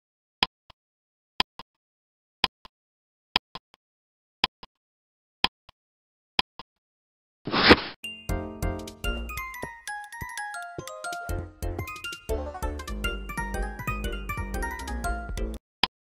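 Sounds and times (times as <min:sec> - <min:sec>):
jingle of chime notes: 0:08.1 - 0:15.4.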